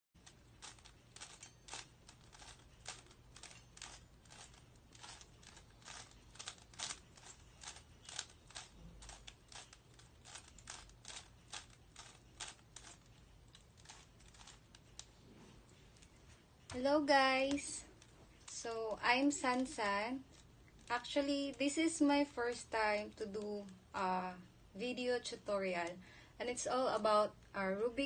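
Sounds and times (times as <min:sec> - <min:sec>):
puzzle cube clicking: 0:00.2 - 0:15.2.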